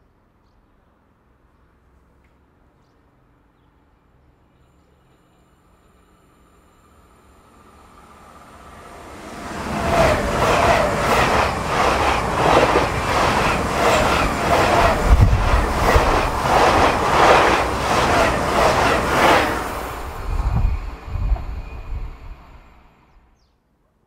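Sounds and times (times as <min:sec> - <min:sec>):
train wheels rushing on rails: 0:07.0 - 0:23.2.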